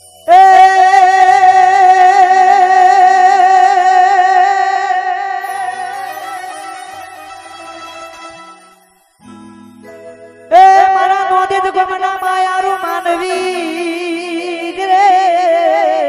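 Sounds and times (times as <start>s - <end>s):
man singing a long note: 0.3s - 6.0s.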